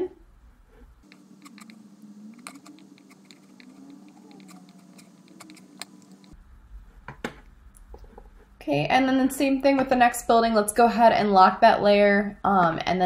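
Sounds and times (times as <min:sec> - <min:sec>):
faint steady hum: 0:00.0 - 0:13.0
keyboard and mouse clicks: 0:01.0 - 0:06.4.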